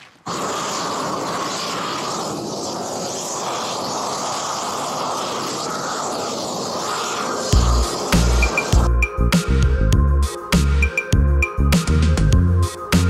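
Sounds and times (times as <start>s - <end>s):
gas torch flame rushing: 0.0s - 9.6s.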